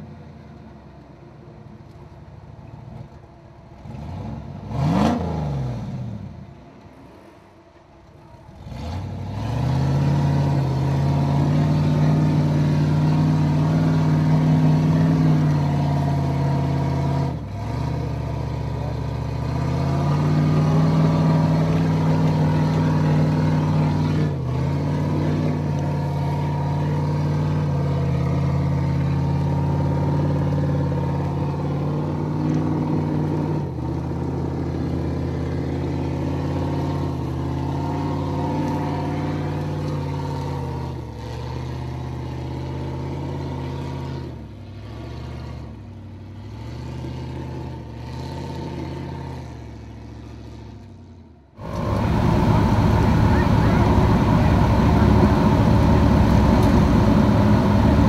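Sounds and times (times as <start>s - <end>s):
truck engine running: 6.2s - 44.8s, 51.6s - 58.0s.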